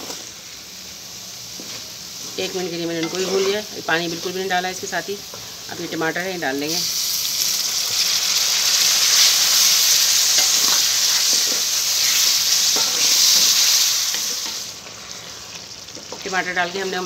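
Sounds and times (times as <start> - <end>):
vegetables sizzling in hot oil: 0.0 - 17.0
spatula scraping pan: 2.9 - 4.3.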